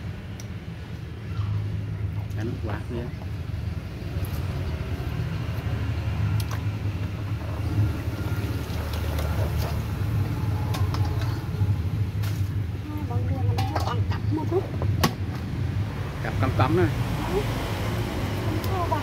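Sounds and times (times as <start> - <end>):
low motor rumble: 0.0 - 19.0
water splashing in a basin: 4.0 - 10.4.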